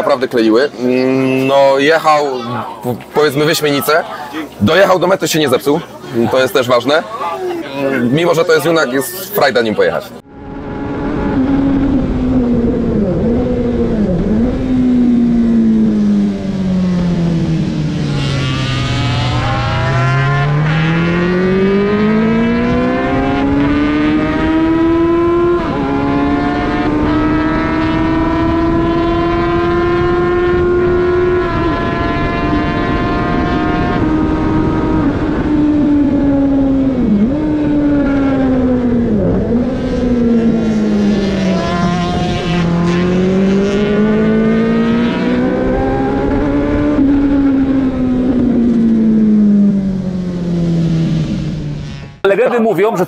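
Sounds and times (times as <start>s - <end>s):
motorcycle engine at racing speed: 10.2s - 52.2s.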